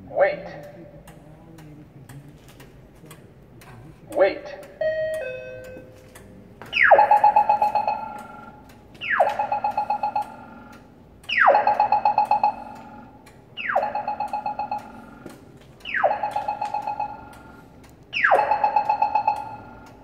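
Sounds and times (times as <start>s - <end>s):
pedestrian signal chirp and ticks: 4.1s - 20.0s.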